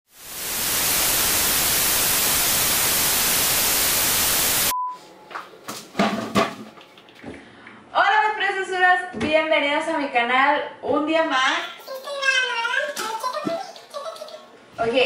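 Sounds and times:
tv static hiss: 0.1s - 4.7s
short beep: 4.6s - 5.0s.

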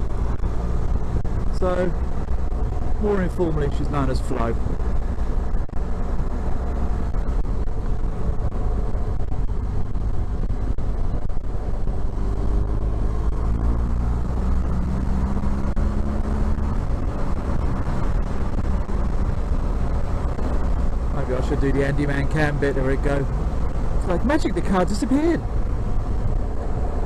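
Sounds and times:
motorcycle engine running: 0.0s - 21.1s
road noise: 0.0s - 27.0s
wind: 0.0s - 27.0s.

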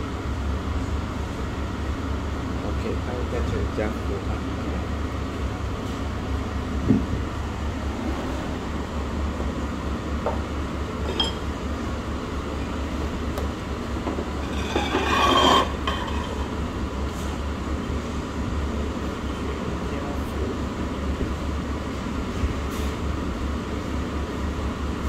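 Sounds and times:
steady low hum: 0.0s - 25.0s
clink of glass or crockery: 11.1s - 11.4s.

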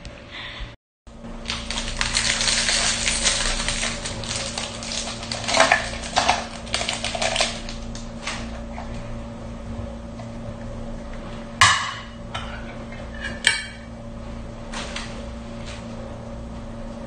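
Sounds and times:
plastic wrapper crinkling: 1.4s - 8.4s.

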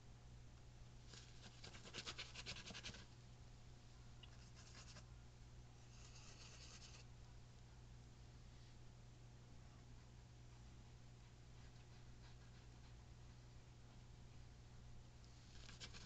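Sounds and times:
low steady hum: 0.0s - 16.0s
paintbrush bristles scratching: 4.4s - 5.0s, 5.9s - 7.0s.

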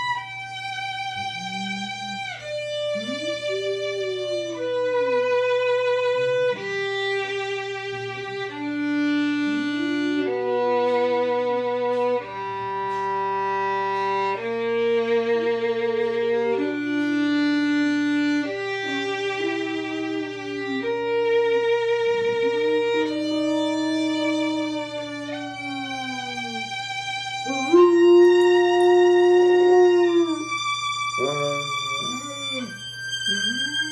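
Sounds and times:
violin playing slow melody: 0.0s - 33.9s.

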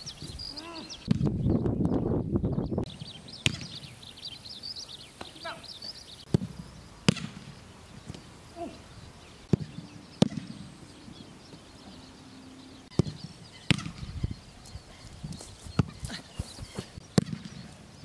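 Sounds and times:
football being kicked: 6.3s - 7.5s, 9.5s - 10.6s, 12.9s - 14.0s, 15.8s - 17.6s.

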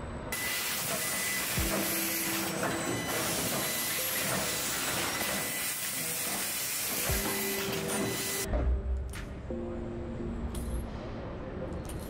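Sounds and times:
short machine whines: 0.3s - 8.5s
steady machine hiss: 0.4s - 8.5s.

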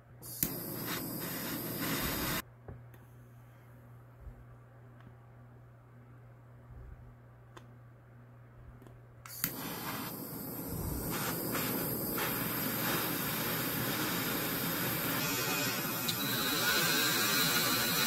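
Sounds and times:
butane torch hissing: 0.2s - 2.4s, 9.3s - 18.0s
torch igniter click: 0.3s - 2.4s, 9.3s - 15.2s.

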